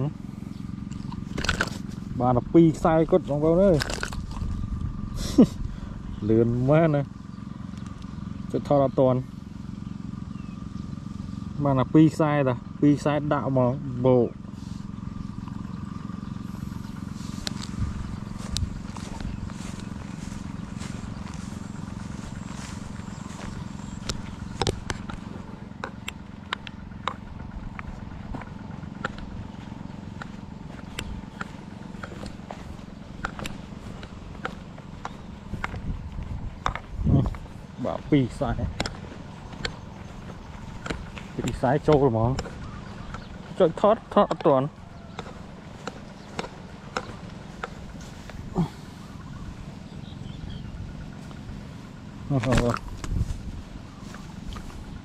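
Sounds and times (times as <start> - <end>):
low motor-like hum: 0.0 - 55.0
sharp clicks and taps: 24.0 - 29.3, 36.6 - 37.4
person grunting: 48.5 - 48.9.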